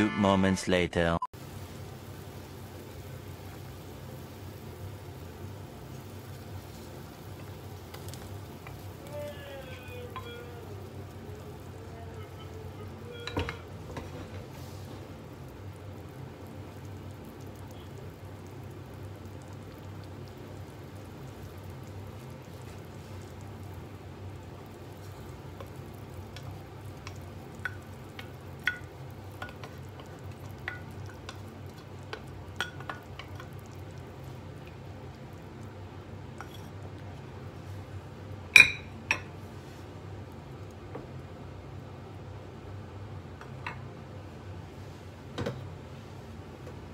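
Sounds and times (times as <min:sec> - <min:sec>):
dishware clinking: 0:13.1 - 0:13.7, 0:38.6 - 0:39.3.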